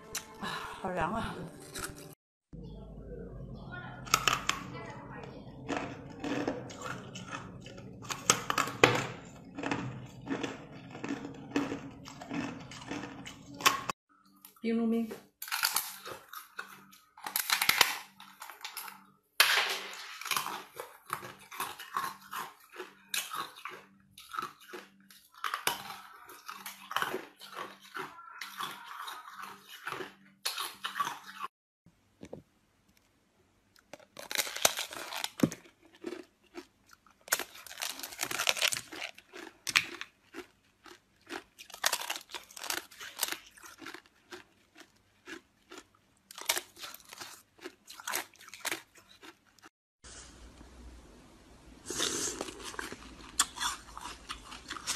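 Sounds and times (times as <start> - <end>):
ice cubes crunching in mouth: 5.6 - 13.9, 15.4 - 19.1, 19.8 - 31.4, 33.8 - 49.7, 51.9 - 54.9.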